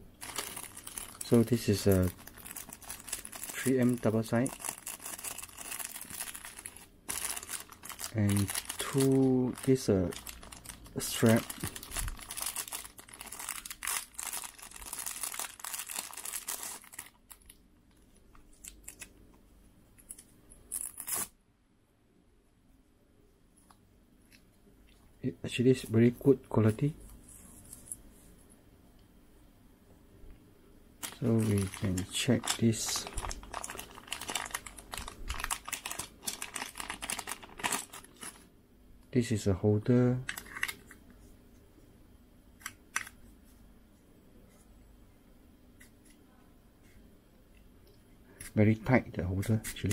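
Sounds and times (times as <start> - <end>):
plastic bags crinkling: 0.1 - 17.6, 31.0 - 38.5.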